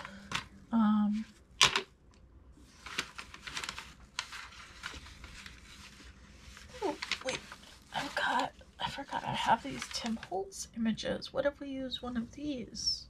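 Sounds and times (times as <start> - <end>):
paper rustling: 2.6 - 10.4.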